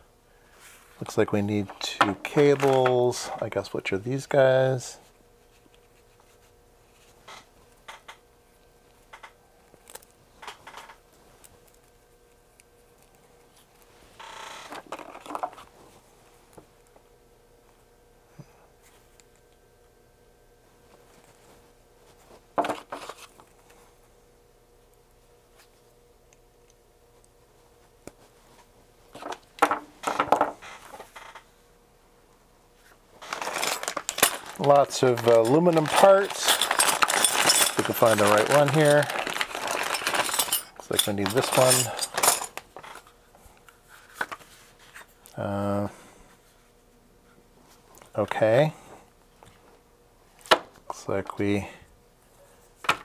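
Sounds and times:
rustling and knocks of parts: 1.0 - 3.6, 9.0 - 11.9, 12.9 - 16.7, 21.0 - 23.8, 28.1 - 31.5, 33.2 - 45.2, 52.6 - 53.0.

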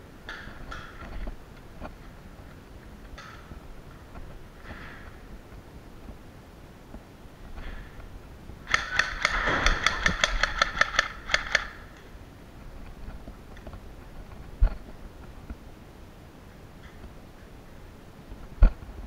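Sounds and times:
airsoft pistol firing rapidly: 8.7 - 11.8.

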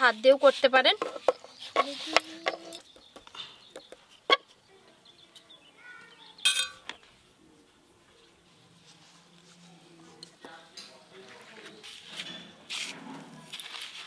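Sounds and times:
ringing clink: 6.5 - 6.8
soft rustling: 8.4 - 10.2.

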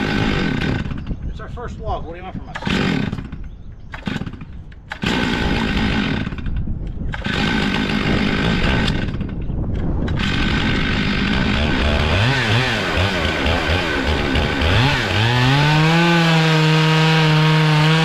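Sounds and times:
chainsaw revving: 0.0 - 1.0, 2.5 - 9.4, 10.1 - 18.0.

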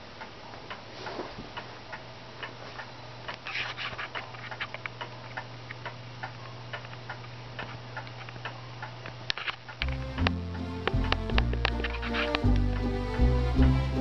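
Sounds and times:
clock ticking: 9.7 - 14.0.

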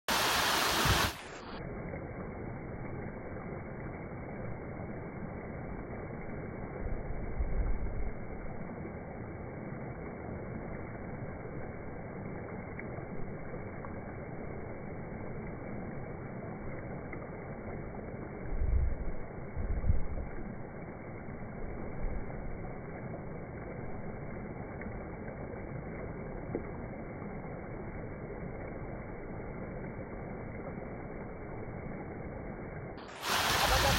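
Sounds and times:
waterfall rushing over rocks: 0.1 - 1.6, 33.0 - 33.9
wind buffeting microphone: 0.8 - 1.2, 18.4 - 20.4.

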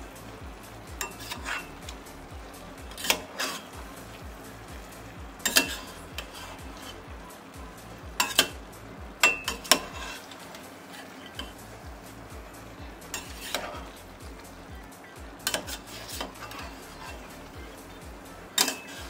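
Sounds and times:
food sizzling: 0.0 - 19.0
metal spoon clinking on pan: 1.0 - 1.7, 5.4 - 6.4, 8.2 - 8.6, 9.2 - 10.2, 13.1 - 13.8, 15.4 - 17.0, 18.6 - 19.0.

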